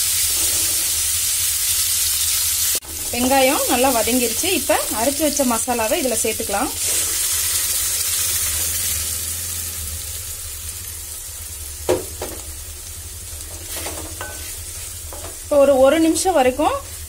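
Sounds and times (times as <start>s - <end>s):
food sizzling in hot oil: 0.0s - 17.0s
spatula stirring in pan: 13.4s - 15.5s.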